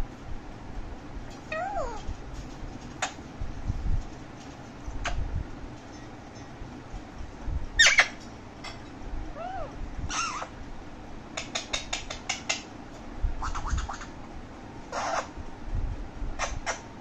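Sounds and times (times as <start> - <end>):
parakeet squawking: 7.8 - 8.2, 9.4 - 10.6, 14.9 - 15.4
parakeet whistled calls: 7.8 - 8.2, 9.4 - 10.5, 14.9 - 15.3
parakeet clicking chirps: 11.4 - 12.7.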